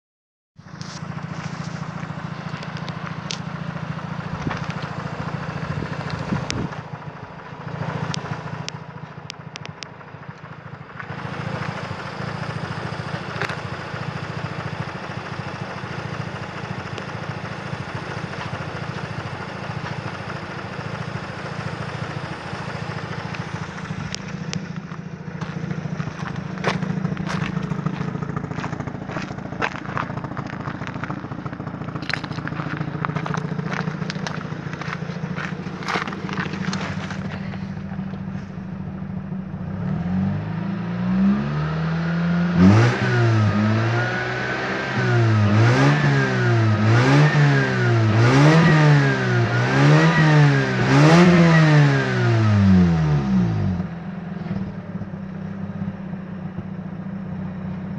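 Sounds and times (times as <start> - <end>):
footsteps on gravel: 0.6 - 5.2, 23.2 - 38.6
rotary engine idling: 0.6 - 41.2, 42.3 - 57.9.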